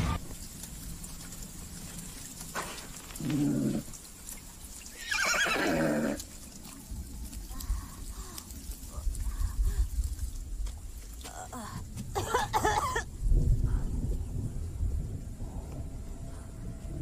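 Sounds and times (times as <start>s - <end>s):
horse-like whinnying: 4.9s - 6.2s
low rumble: 13.1s - 17.0s.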